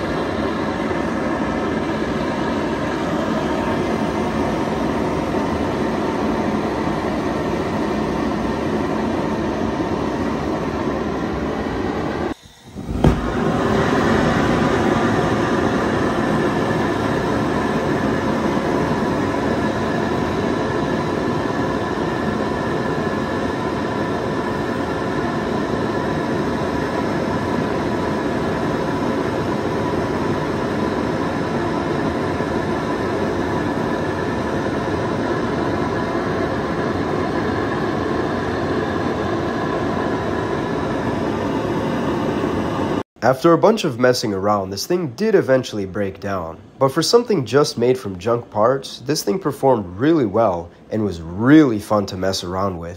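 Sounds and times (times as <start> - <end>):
jet engine roaring: 0.0 - 52.9
sharp pop: 12.8 - 13.4.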